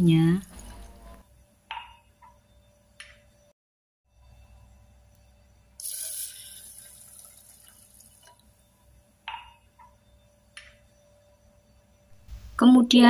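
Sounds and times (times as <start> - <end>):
water pouring and splashing: 5.8 - 8.4.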